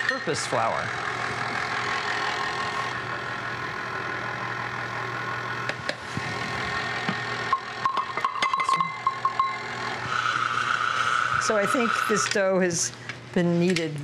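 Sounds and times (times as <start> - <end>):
stand mixer motor humming: 0.6 - 7.9, 9.0 - 12.4.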